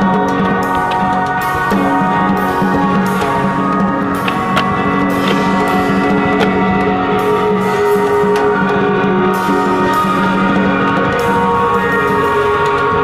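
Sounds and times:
band music with sustained notes: 0.0s - 13.0s.

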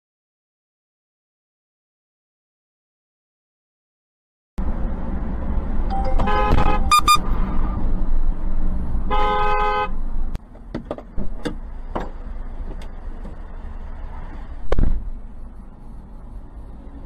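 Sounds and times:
low rumble of moving car: 4.6s - 17.0s
car horn honking: 5.9s - 7.8s, 9.1s - 10.0s
loud thump: 14.7s - 15.1s.

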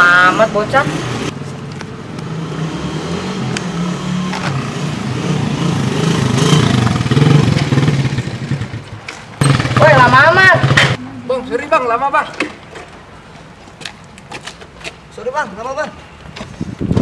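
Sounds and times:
motor scooter engine passing: 2.2s - 11.0s.

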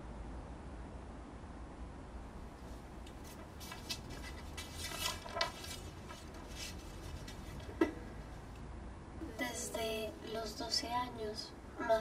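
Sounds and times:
steady low hiss: 0.0s - 12.0s
faint rustles and clicks: 2.6s - 8.0s.

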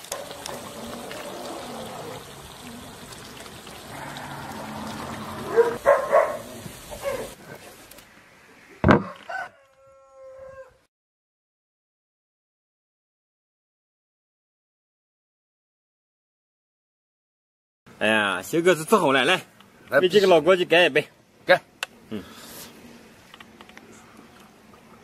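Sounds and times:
rooster crowing: 3.9s - 5.8s, 9.0s - 10.9s.

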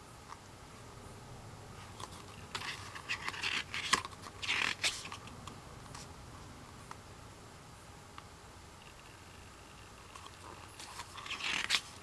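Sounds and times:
paper page rustling: 1.9s - 5.3s, 10.2s - 12.0s.

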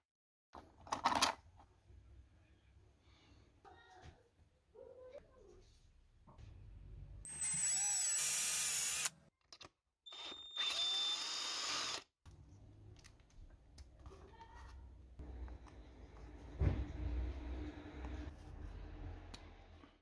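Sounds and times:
cordless drill whining: 7.3s - 9.1s, 10.1s - 12.1s.

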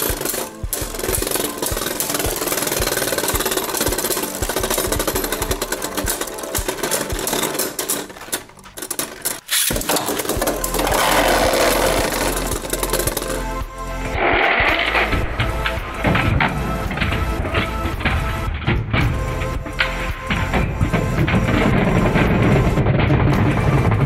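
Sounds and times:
spinning tops whirring and clacking: 0.0s - 15.9s.

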